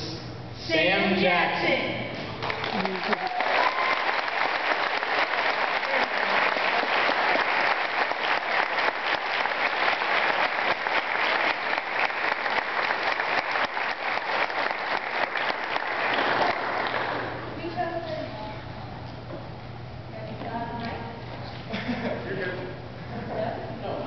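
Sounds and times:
dense applause: 2.4s - 17.4s.

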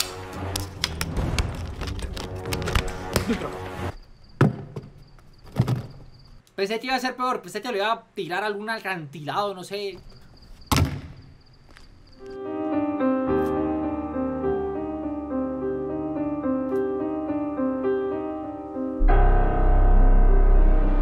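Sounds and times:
slow piano music: 12.2s - 21.0s.

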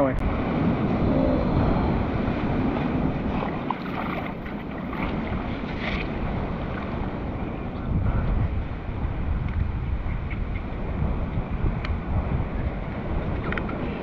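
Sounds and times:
ocean surf: 0.0s - 14.0s
wind rumbling on microphone: 0.0s - 14.0s.

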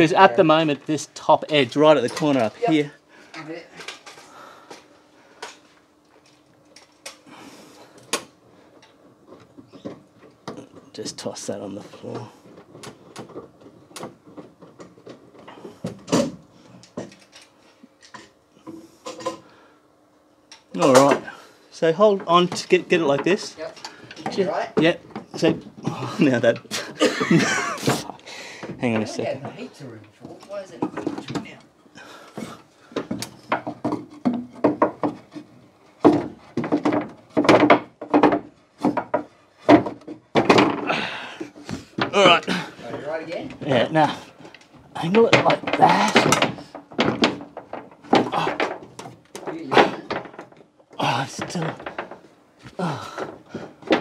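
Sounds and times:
wooden knocks and rubs: 32.9s - 40.8s, 44.7s - 50.7s.

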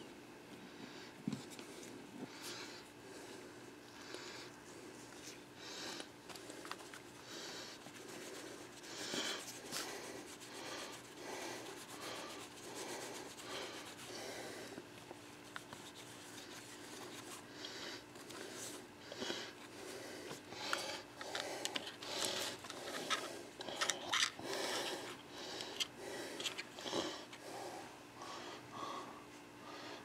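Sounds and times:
cloth wiping camera body: 7.8s - 14.1s, 15.2s - 17.5s.

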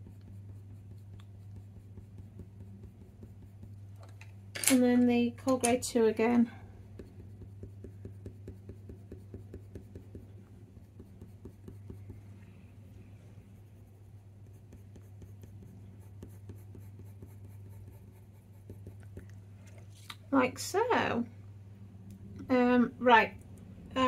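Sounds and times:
pencil scratching on paper: 0.0s - 3.9s, 6.9s - 12.2s, 13.5s - 19.2s
steady low hum: 0.0s - 24.0s.

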